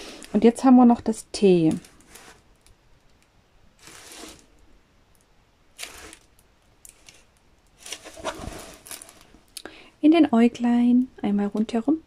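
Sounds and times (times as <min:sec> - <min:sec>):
plastic film rustling and crinkling: 0:01.5 - 0:02.8, 0:03.8 - 0:04.5, 0:05.8 - 0:09.5.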